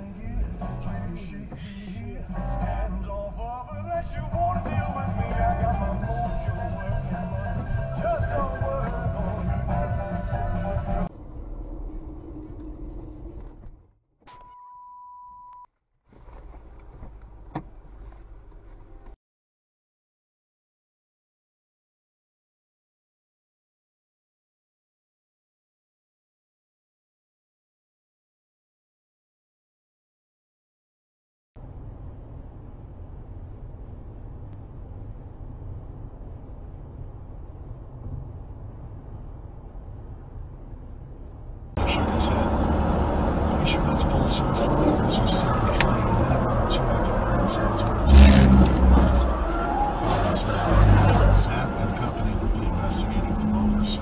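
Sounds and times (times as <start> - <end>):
car interior road and engine noise: 0.0 - 13.9, 16.1 - 19.2, 31.6 - 54.0
electronic beep: 14.4 - 15.7.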